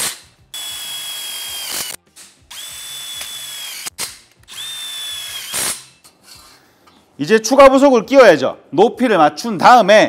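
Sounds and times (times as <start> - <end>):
cordless drill whining: 0.6 - 5.7.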